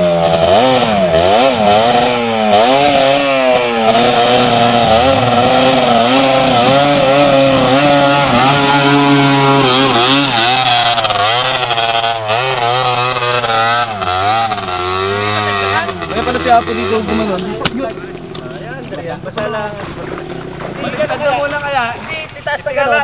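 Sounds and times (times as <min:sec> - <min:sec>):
dirt bike engine revving: 0:00.0 - 0:22.1
water splashing: 0:03.3 - 0:23.0.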